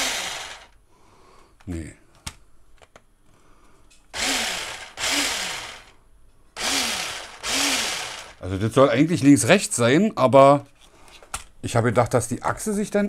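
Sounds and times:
toy truck motor whirring: 0.0s - 0.8s, 4.2s - 5.9s, 6.6s - 8.4s.

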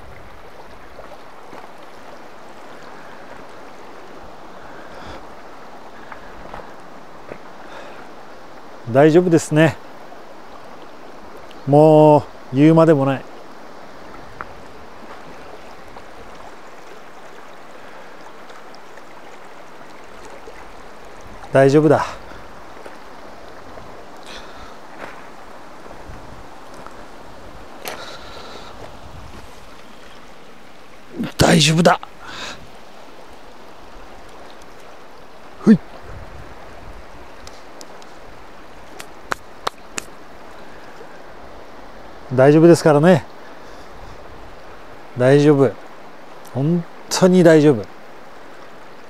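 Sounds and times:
river water rushing: 0.0s - 49.0s.

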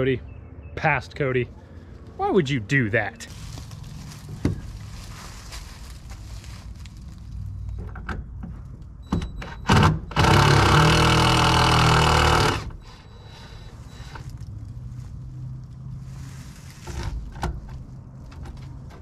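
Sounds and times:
cordless drill motor: 9.8s - 13.0s.

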